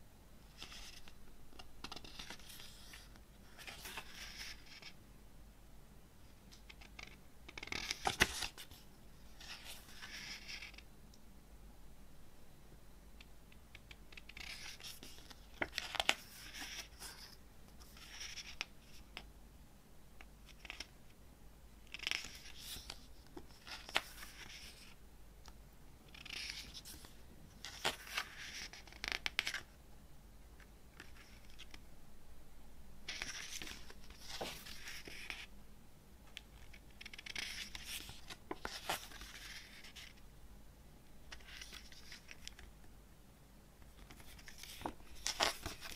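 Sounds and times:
glossy pages turning: 0.5s - 5.0s, 13.7s - 19.0s, 21.9s - 25.0s, 26.1s - 29.7s, 33.1s - 35.5s, 36.6s - 40.2s, 41.3s - 42.7s, 44.0s - 45.9s.

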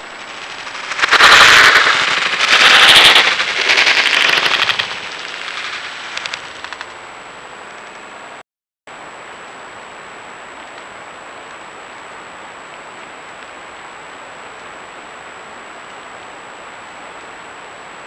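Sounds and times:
thin high whine: 0.0s - 7.1s
microphone hiss: 0.0s - 18.0s.

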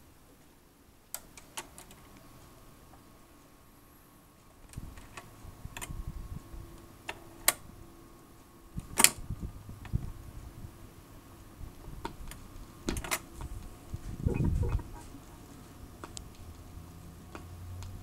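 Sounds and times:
turntable rumble and hum: 4.8s - 18.0s.

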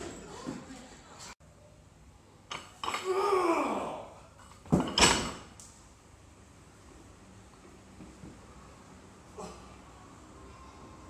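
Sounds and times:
man shouting: 3.0s - 4.2s
barbell plates thudding on blocks: 4.7s - 5.5s.

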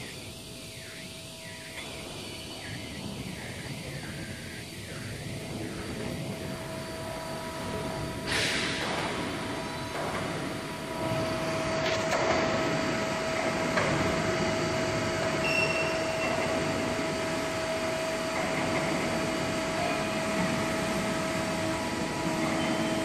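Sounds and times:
burst of hiss: 8.2s - 9.3s.

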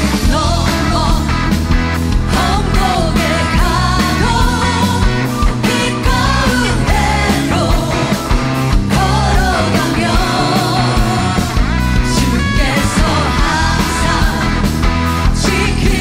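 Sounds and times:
women singing: 0.0s - 1.5s, 2.2s - 16.0s
full band playing: 0.0s - 16.0s.

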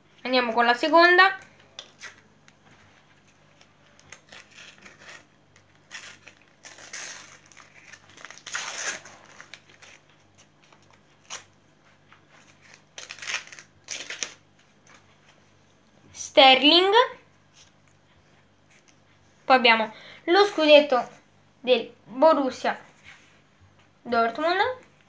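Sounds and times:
plastic packet tearing and crinkling: 3.6s - 11.6s, 12.4s - 14.4s.

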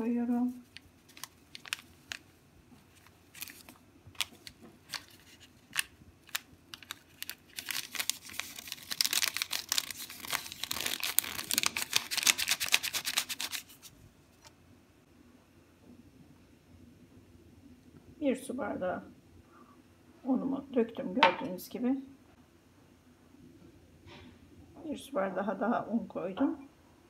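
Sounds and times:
paper sachet crinkling: 0.4s - 13.9s.

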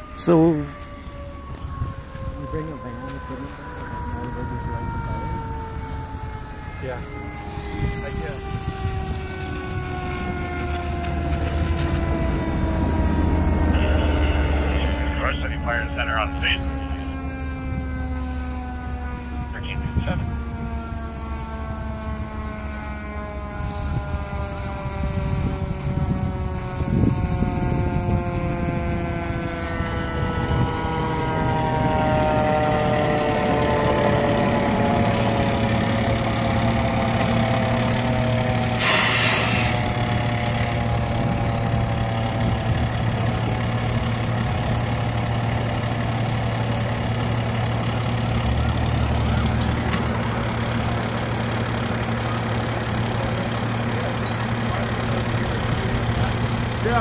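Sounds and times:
fire engine diesel engine: 0.0s - 57.0s
air brakes hissing: 38.6s - 39.9s.

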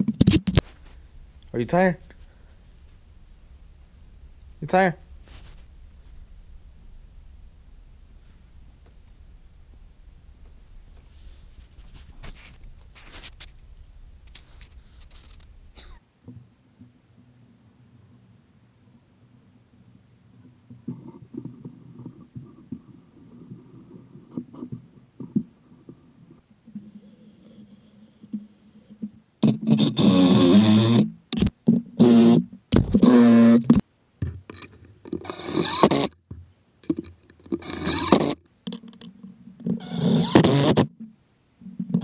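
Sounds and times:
rag rubbing on wood: 28.4s - 33.8s, 34.5s - 36.2s, 36.8s - 38.8s, 39.7s - 40.9s
loud harsh bursts of woodwork: 29.4s - 33.8s, 34.5s - 36.2s, 36.8s - 39.0s, 39.6s - 40.9s.

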